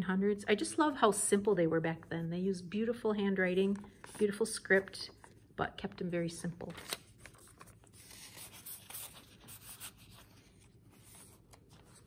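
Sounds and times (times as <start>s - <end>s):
paper rustling: 6.6s - 12.0s.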